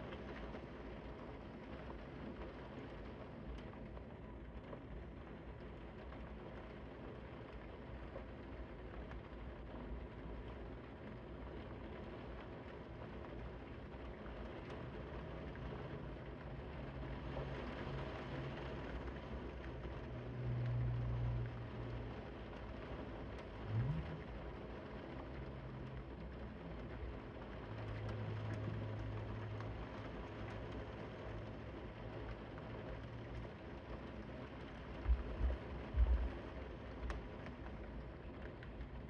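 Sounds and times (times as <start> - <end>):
steady rain: 0.0 - 39.0
low droning hum: 23.4 - 27.2, 34.9 - 37.4
short rising whine: 23.7 - 24.3.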